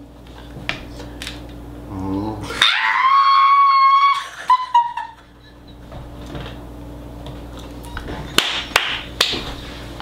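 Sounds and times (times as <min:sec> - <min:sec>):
high-pitched squealing laugh: 0:02.5 - 0:05.8.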